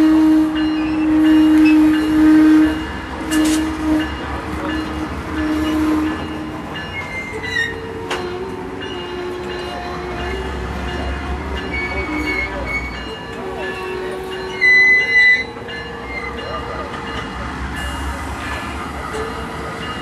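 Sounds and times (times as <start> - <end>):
locomotive horn blasts: 0.0 - 16.4
wheel squeal: 11.7 - 13.1.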